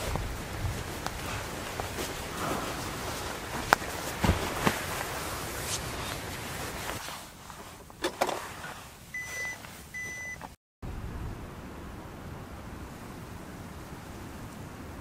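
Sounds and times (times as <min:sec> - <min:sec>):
steady hiss: 0:00.0 - 0:09.9.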